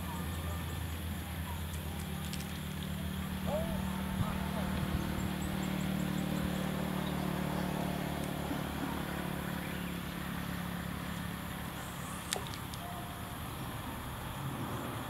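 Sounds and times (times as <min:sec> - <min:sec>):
motor humming: 0:00.0 - 0:15.0.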